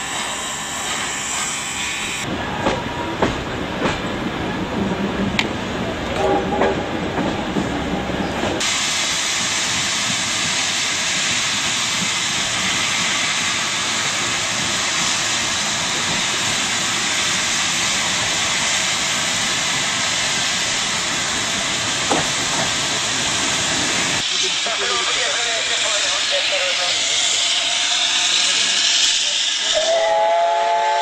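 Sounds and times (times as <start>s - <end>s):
steady loud hiss: 22.8s - 30.2s.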